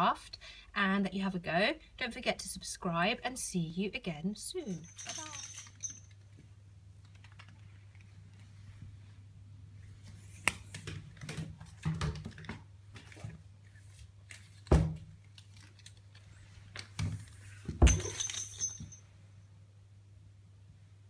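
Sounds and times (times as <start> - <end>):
small bell jingling: 4.6 - 6.2, 17.9 - 19.0.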